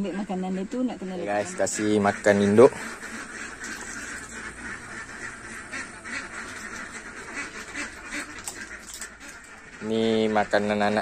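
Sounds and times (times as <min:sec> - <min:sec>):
ducks quacking: 0:00.0 - 0:11.0.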